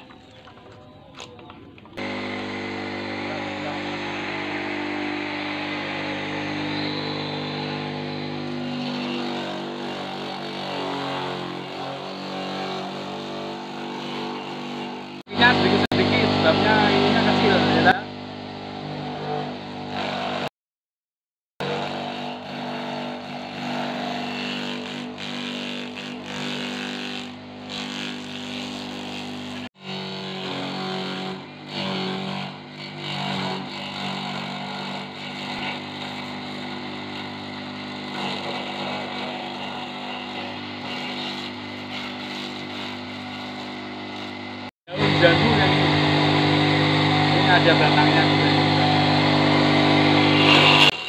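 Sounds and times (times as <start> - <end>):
chopper motor humming: 1.2 - 10.3, 44.3 - 51.0.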